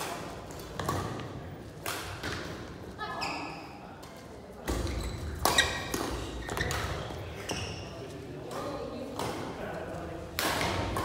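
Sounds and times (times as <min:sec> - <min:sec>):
shoe squeaks on court: 0:03.2 - 0:03.8, 0:04.8 - 0:08.1
racket hitting shuttlecock: 0:04.1 - 0:07.0, 0:10.4 - 0:11.0.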